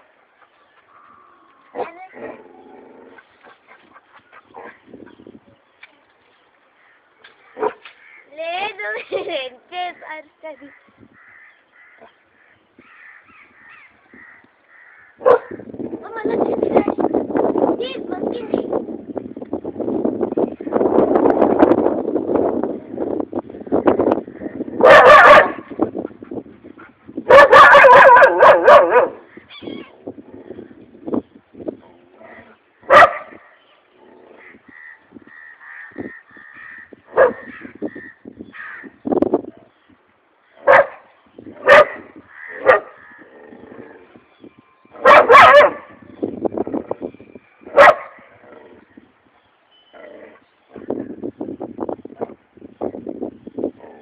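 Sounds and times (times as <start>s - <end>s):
dog barking: 15.2s - 15.6s, 24.8s - 25.7s, 27.3s - 29.2s, 32.9s - 33.4s, 37.2s - 37.5s, 40.7s - 41.0s, 41.6s - 43.0s, 45.0s - 46.0s, 47.7s - 48.2s.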